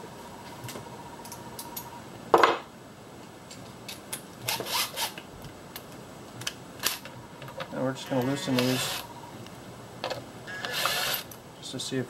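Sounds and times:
tool scraping metal: 0:08.0 - 0:09.1.

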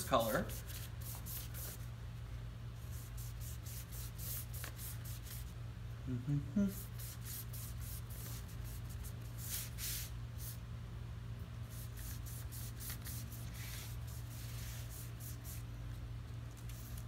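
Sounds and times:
steady low hum: 0:00.0 - 0:17.0
foam brush swishing on paper: 0:00.2 - 0:01.9, 0:02.8 - 0:05.5, 0:06.8 - 0:10.6, 0:11.7 - 0:15.7.

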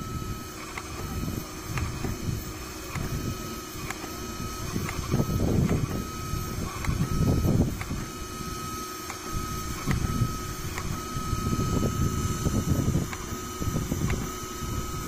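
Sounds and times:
machine motor whine: 0:00.0 - 0:15.0
suction through hose: 0:00.0 - 0:15.0.

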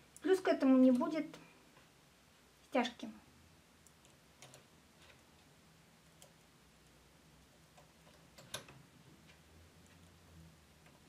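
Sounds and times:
latch tool clicking on needles: 0:07.8 - 0:08.8.

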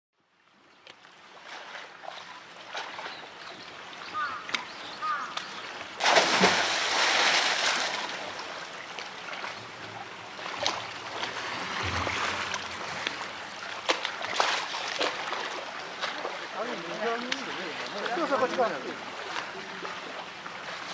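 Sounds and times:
splashing and running water: 0:00.4 - 0:20.9
water drips: 0:07.7 - 0:20.6.

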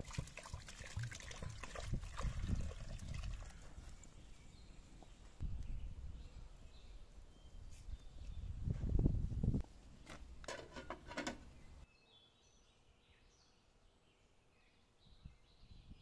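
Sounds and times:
small birds chirping: 0:03.0 - 0:08.7, 0:11.5 - 0:16.0.

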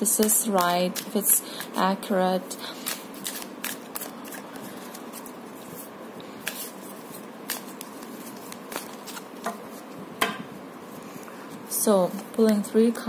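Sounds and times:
playing cards shuffling: 0:00.0 - 0:02.0, 0:02.7 - 0:10.0.

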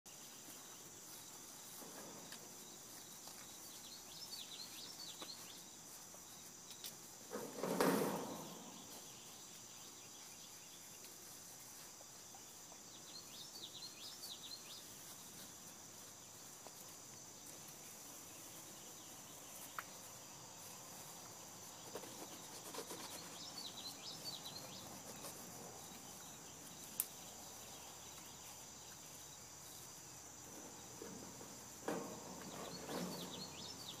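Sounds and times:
bird chirping: 0:00.1 - 0:06.5, 0:12.3 - 0:15.2, 0:18.2 - 0:29.5, 0:31.9 - 0:34.0
insect chorus: 0:00.1 - 0:34.0.

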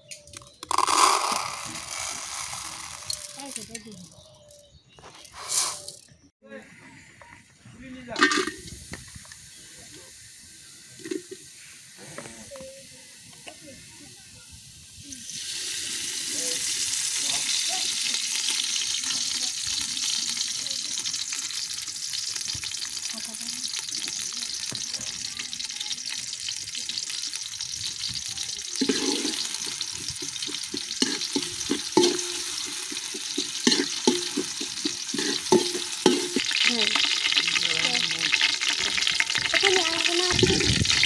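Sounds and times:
onions sizzling in hot oil: 0:00.3 - 0:03.9, 0:08.1 - 0:41.0
metal spoon scraping pot: 0:28.8 - 0:37.5.

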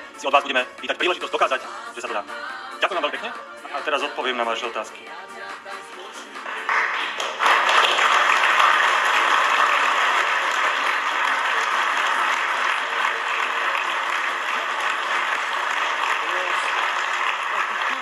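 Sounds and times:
crowd applauding: 0:06.3 - 0:18.0.

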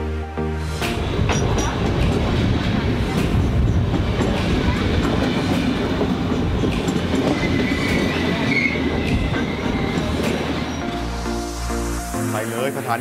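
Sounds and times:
train rumble and rattle: 0:00.8 - 0:11.8
clicks from train wheels: 0:03.1 - 0:10.9
faint high wheel squeal: 0:07.3 - 0:11.0.

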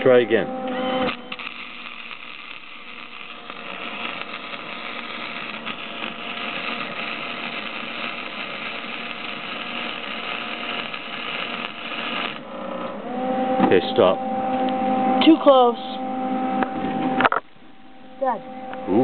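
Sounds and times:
arc welder sizzling hiss: 0:00.0 - 0:12.6.

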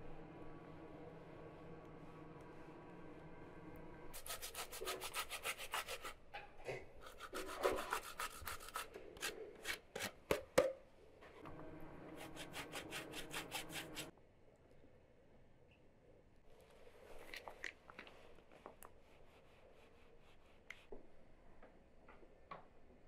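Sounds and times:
food grated on box grater: 0:07.0 - 0:10.2, 0:12.2 - 0:14.1.

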